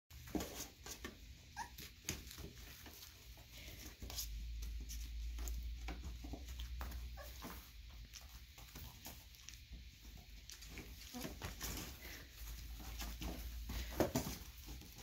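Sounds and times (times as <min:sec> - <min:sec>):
paws scuffling on cardboard: 0:00.2 - 0:15.0
puppies whimpering and yipping: 0:01.3 - 0:03.1, 0:06.6 - 0:09.4, 0:10.6 - 0:13.4.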